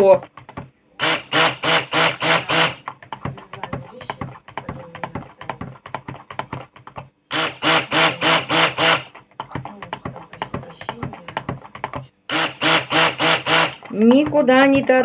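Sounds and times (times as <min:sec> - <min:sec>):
stick blender motor whine: 0:00.0 - 0:15.0
blender head tapping plastic cup: 0:00.2 - 0:15.0.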